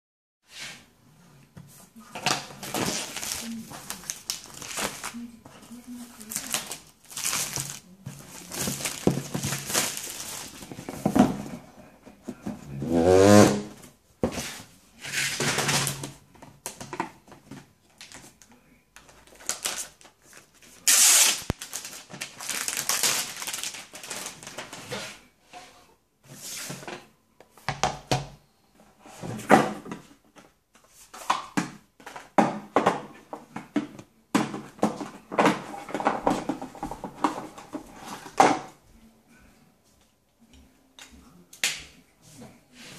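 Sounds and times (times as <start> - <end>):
plastic wrap crinkling and tearing: 2.2 - 11.2, 19.0 - 24.9.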